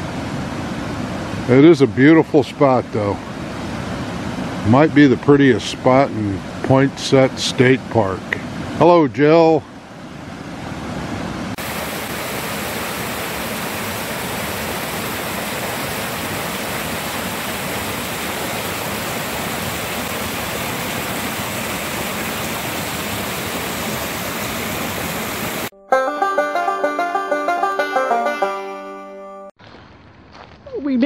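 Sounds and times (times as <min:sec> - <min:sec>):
creek rushing over stones: 0:11.6 - 0:25.7.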